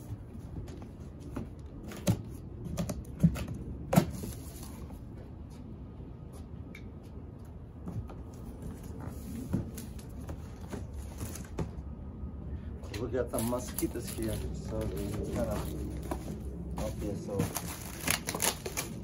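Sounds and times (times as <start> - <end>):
cardboard box rustling: 8.8 - 11.7, 13.6 - 19.0.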